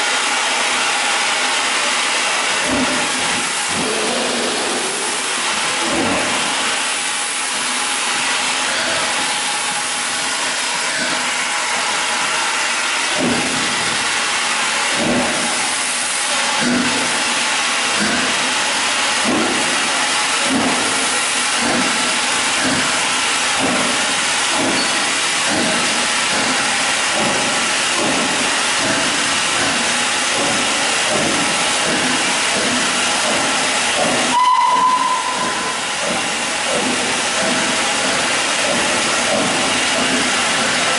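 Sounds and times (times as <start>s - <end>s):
steam hissing: 0.0s - 40.9s
steam locomotive exhaust chuffs: 0.0s - 40.9s
locomotive whistle: 34.3s - 36.0s.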